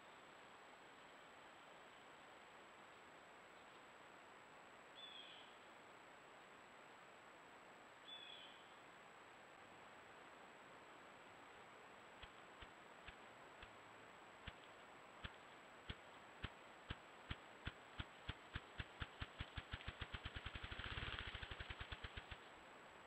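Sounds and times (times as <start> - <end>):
grouse wing drumming: 12.2 - 13.8, 14.4 - 22.5.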